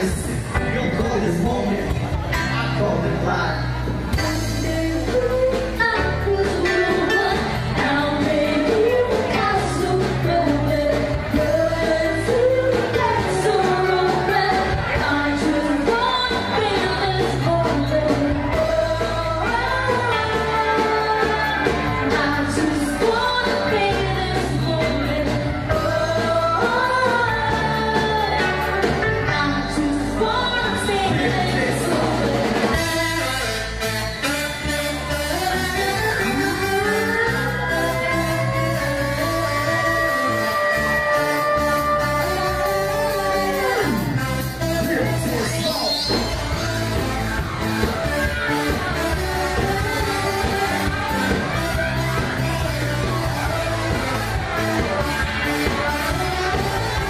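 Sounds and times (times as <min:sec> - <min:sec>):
pop band playing: 0:00.0 - 0:57.0
person singing: 0:04.1 - 0:33.8, 0:35.0 - 0:57.0.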